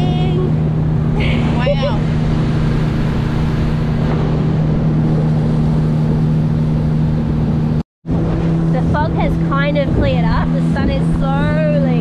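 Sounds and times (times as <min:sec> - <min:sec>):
outboard motor droning: 0:00.0 - 0:12.0
wind and water rushing: 0:00.0 - 0:12.0.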